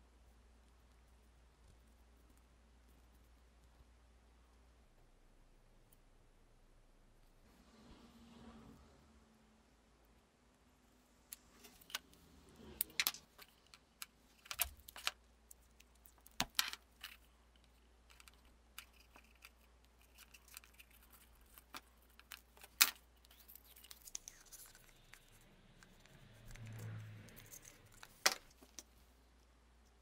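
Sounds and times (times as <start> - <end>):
small parts clicking and tapping: 11.2 - 30.0.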